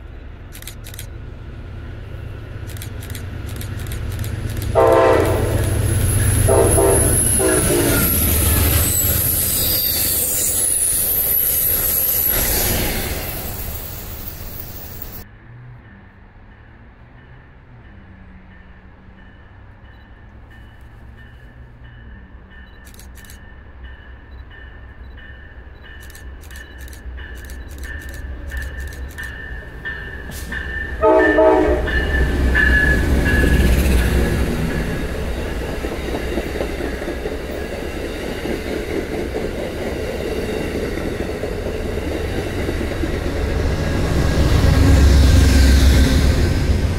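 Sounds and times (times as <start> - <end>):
train rumble and clatter: 0.0 - 46.9
train horn blast: 4.7 - 8.5, 30.3 - 33.5.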